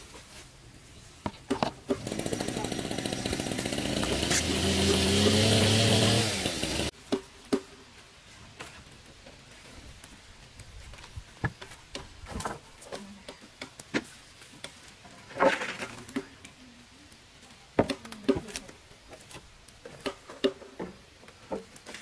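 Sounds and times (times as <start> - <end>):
power tool running: 1.9 - 6.9.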